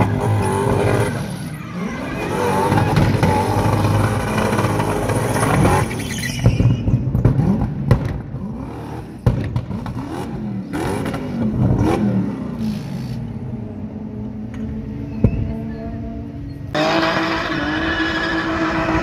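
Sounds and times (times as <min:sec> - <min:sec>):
car engine revving: 0:00.0 - 0:06.2, 0:07.2 - 0:13.4, 0:16.7 - 0:19.0.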